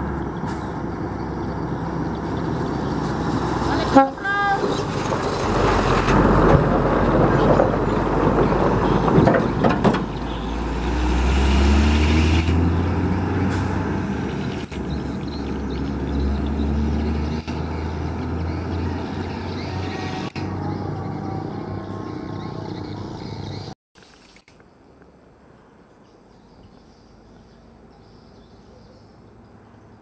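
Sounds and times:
truck diesel engine: 0.0s - 23.8s.

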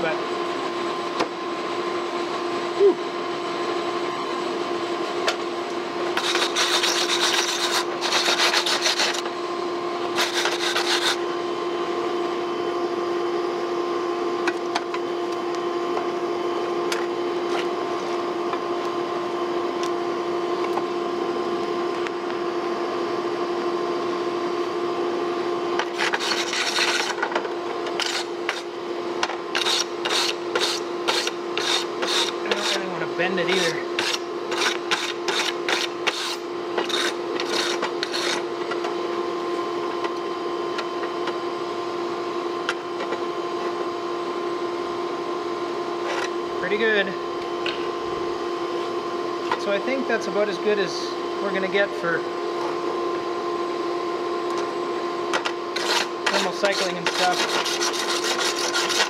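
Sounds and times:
forge air blower humming: 0.0s - 59.0s
hot blade scrubbed rasping: 6.1s - 9.2s, 10.2s - 11.2s, 25.8s - 27.2s, 27.9s - 28.7s, 29.5s - 38.4s, 55.7s - 59.0s.

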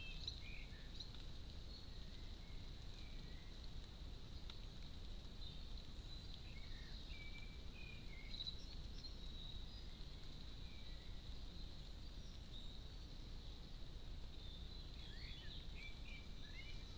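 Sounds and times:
whistled bird notes: 0.0s - 1.1s, 14.4s - 16.9s
outdoor background noise: 0.0s - 16.9s.

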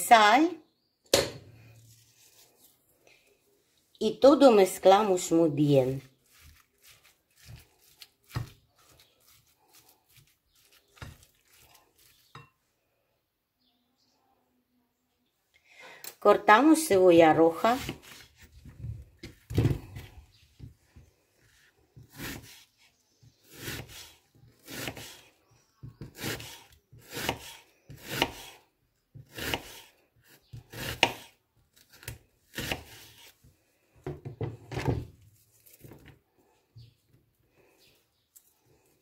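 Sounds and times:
faint handling of onion slices: 1.6s - 3.4s, 5.8s - 12.4s
knife cutting onion on wooden board: 5.6s - 12.4s, 17.3s - 18.6s, 21.5s - 33.5s.

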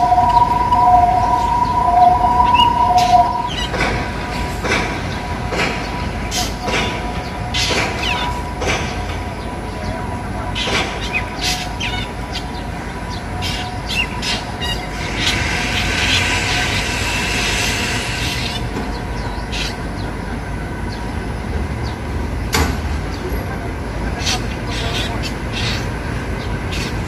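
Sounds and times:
low rumble: 0.0s - 5.3s
bird calling: 0.0s - 15.5s.

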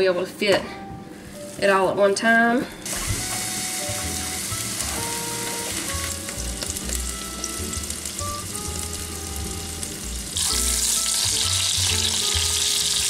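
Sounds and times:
patties sizzling in a skillet: 2.9s - 13.0s.

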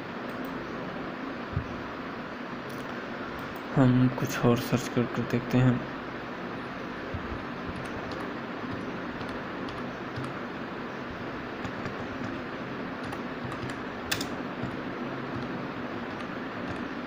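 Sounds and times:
steady background hiss: 0.0s - 17.0s
keyboard key clicks: 13.0s - 14.8s.

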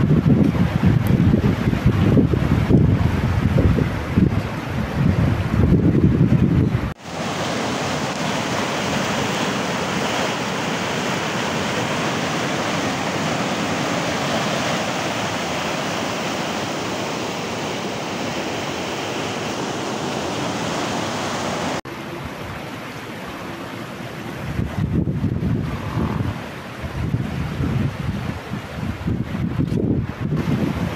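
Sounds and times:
floodwater rushing: 6.9s - 30.9s.

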